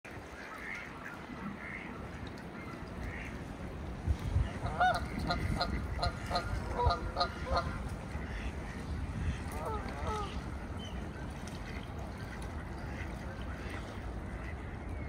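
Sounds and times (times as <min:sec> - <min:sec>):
wind rumble on microphone: 0:00.1 - 0:15.0
geese honking: 0:04.6 - 0:10.4.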